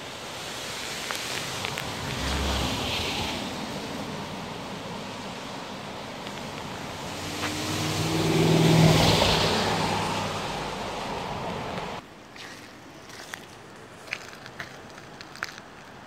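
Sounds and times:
river rushing: 0.0s - 12.0s
car passing: 0.4s - 12.0s.

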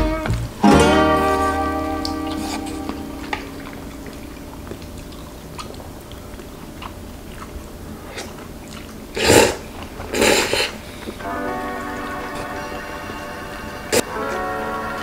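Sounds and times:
person chewing: 2.0s - 11.2s.

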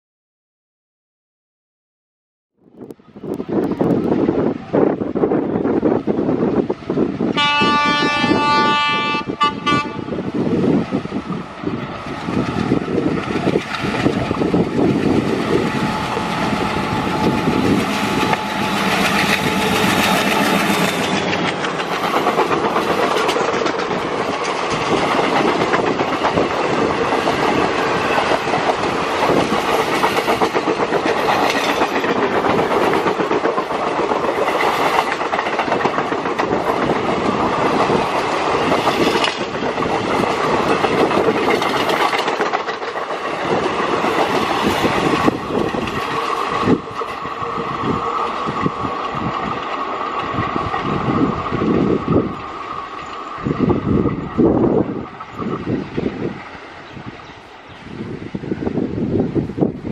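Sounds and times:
locomotive horn: 7.3s - 10.2s
locomotive engine running: 11.5s - 31.5s
train wheels clattering on rail joints: 12.0s - 56.3s.

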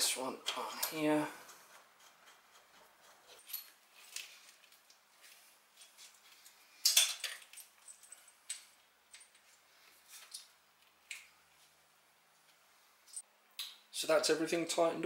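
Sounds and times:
rustling hose and plastic: 0.8s - 11.8s.

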